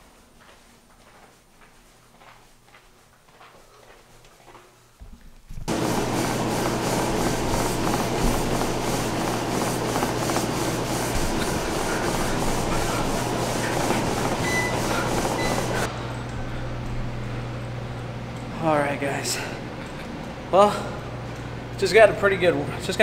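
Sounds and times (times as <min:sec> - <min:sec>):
treadmill motor hum: 0:03.2 - 0:23.0
footfalls on treadmill deck: 0:05.0 - 0:15.9
treadmill belt rushing: 0:05.6 - 0:16.0.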